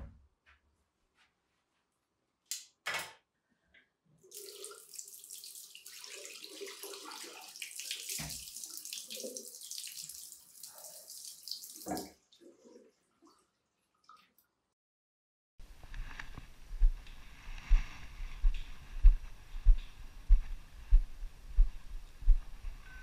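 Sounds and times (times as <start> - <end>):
tap water running into basin: 4.2 - 13.4.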